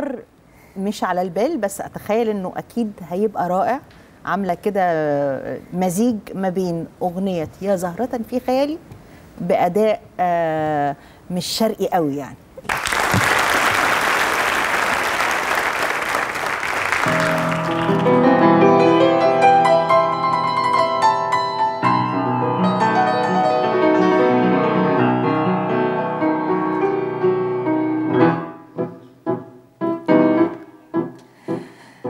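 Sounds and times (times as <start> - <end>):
audience applause: 12.6 - 18.3
grand piano playing chords: 17.0 - 31.6.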